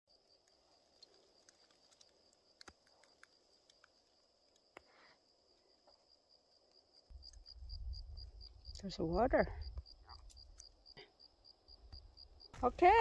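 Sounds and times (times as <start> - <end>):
faint ticks: 0.4 - 5.0
high-pitched cricket trill: 6.1 - 13.0.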